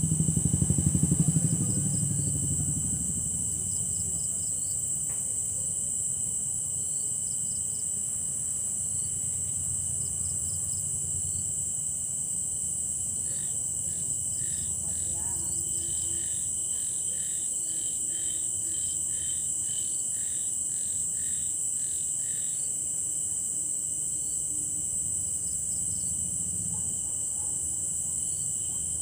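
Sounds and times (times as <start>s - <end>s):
low pulsing rumble: 0.0s - 4.3s
crickets trilling: 0.0s - 29.0s.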